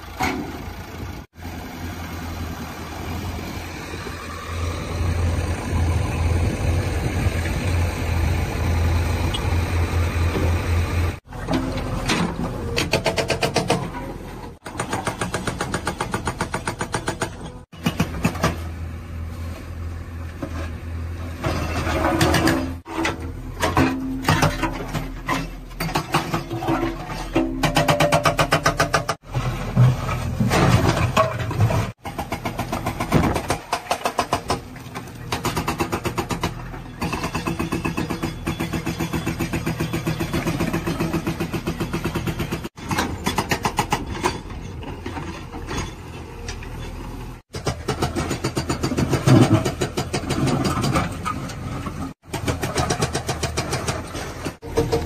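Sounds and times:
diesel engines under load: 0.0s - 55.0s
hydraulic rock breaker hammering: 27.4s - 29.2s, 52.2s - 55.0s.

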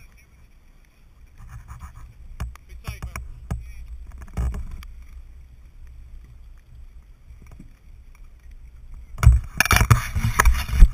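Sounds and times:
wind rumble: 0.0s - 10.9s.

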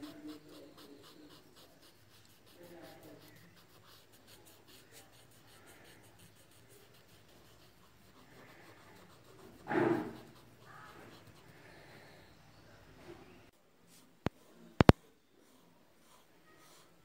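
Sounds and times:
cotton bud scratching on paper: 0.0s - 12.4s, 13.9s - 17.0s.

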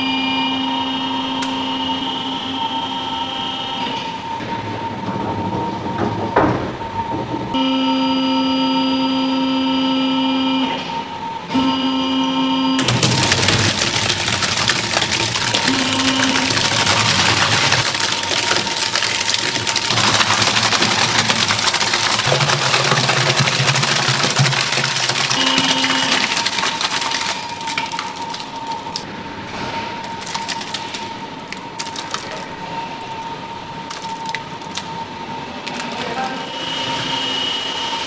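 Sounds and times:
steady high machine whine: 0.0s - 5.6s, 32.4s - 38.0s
machinery clattering: 12.8s - 34.8s.

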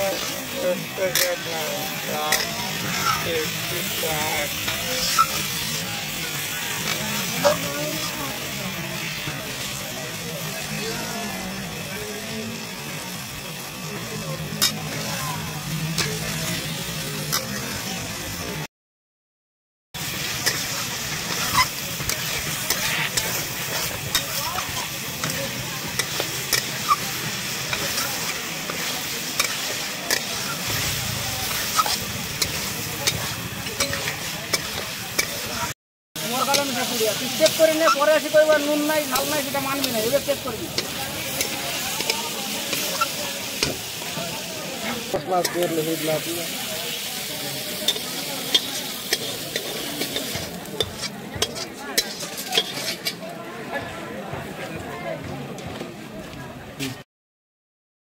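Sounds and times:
spatula scraping a metal pan: 0.0s - 8.2s, 20.3s - 43.8s, 47.8s - 53.2s
meat sizzling in a pan: 0.0s - 18.6s, 20.0s - 53.2s.

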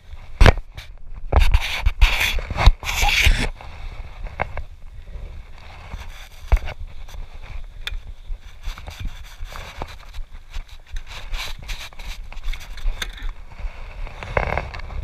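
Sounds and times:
bike scraping and knocking: 0.3s - 15.0s
undergrowth rustling: 2.3s - 15.0s
bike clicks: 7.6s - 9.2s, 9.8s - 13.4s.

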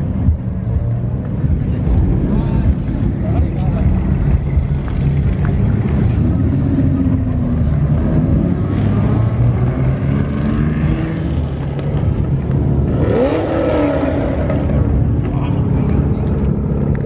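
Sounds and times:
faint voices: 0.0s - 8.2s, 14.4s - 17.0s
car engines rumbling: 0.0s - 17.0s.

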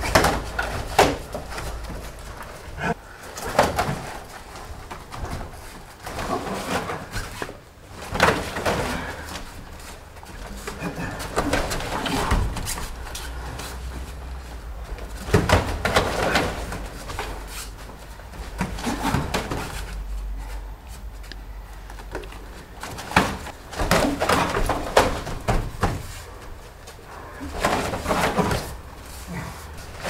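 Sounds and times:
thuds and slaps on mats: 14.9s - 17.6s, 22.8s - 26.3s.

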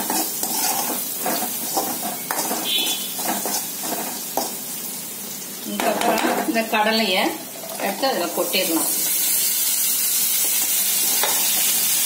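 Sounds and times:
metal spatula scraping pan: 0.0s - 4.6s
oil sizzling in pan: 0.0s - 12.0s.

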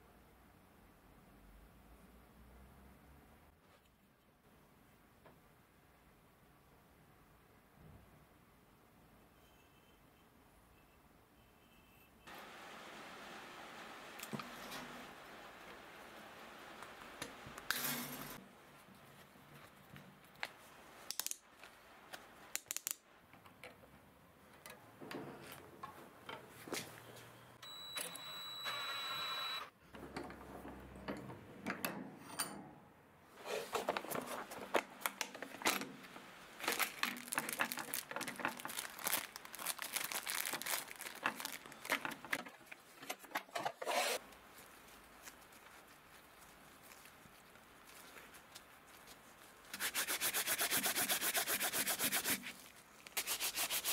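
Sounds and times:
handling noises: 33.3s - 49.8s
wire clicking and rattling: 36.6s - 43.5s.

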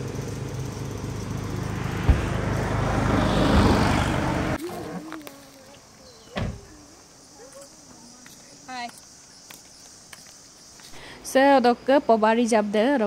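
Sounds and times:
engine hum: 0.0s - 7.0s.

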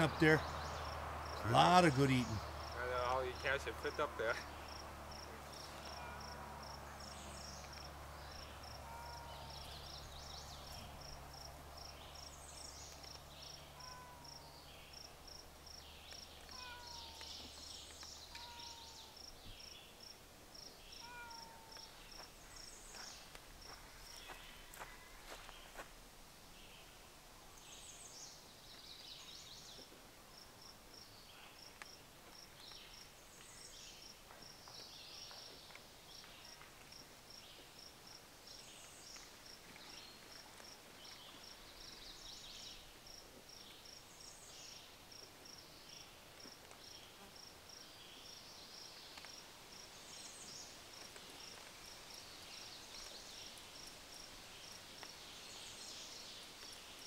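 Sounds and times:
falling birdsong phrase: 0.0s - 11.0s, 15.8s - 20.0s.

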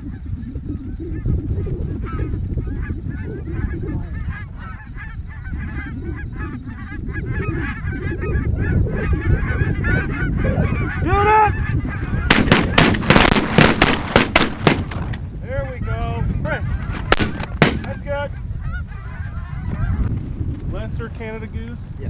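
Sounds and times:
geese calling: 0.0s - 20.2s
shotgun blasts: 12.3s - 15.2s, 17.1s - 18.0s.

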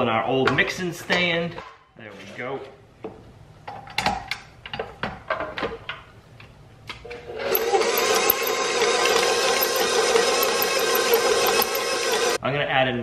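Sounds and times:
stand mixer motor humming: 7.4s - 12.4s.

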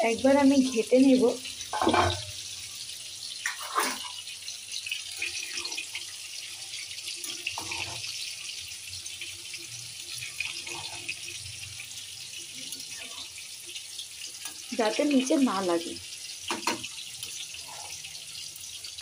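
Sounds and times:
pan simmering with steady hiss: 0.0s - 19.0s
spoon scraping pan: 1.6s - 2.5s, 3.4s - 4.3s, 5.2s - 8.5s, 10.2s - 12.0s, 16.5s - 18.7s.

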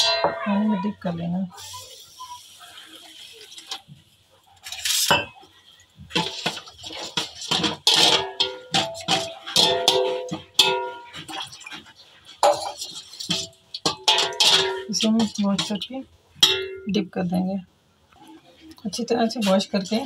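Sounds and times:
water splashing into metal bowl: 4.6s - 15.8s
metal spoon clinking against bowl: 12.4s - 16.9s.

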